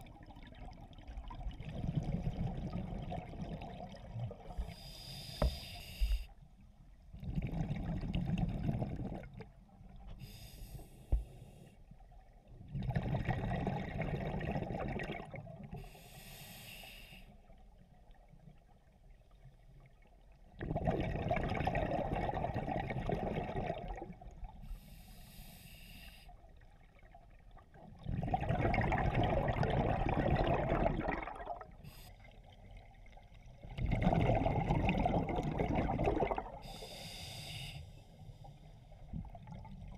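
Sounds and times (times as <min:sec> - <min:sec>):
exhaled bubbles rushing: 0:00.0 - 0:04.6, 0:12.7 - 0:15.7, 0:20.6 - 0:24.3, 0:27.8 - 0:31.8, 0:33.6 - 0:36.7
diver inhaling through regulator: 0:04.6 - 0:06.3, 0:10.2 - 0:11.8, 0:15.8 - 0:17.4, 0:24.6 - 0:26.4, 0:36.6 - 0:38.8.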